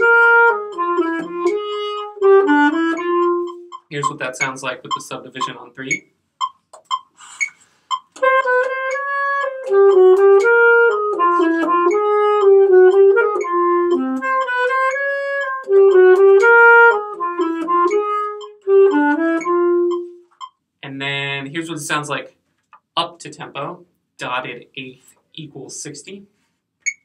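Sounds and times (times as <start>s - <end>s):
alto saxophone melody: 0.0s - 5.6s, 8.1s - 20.4s
metronome clicking: 0.0s - 20.6s.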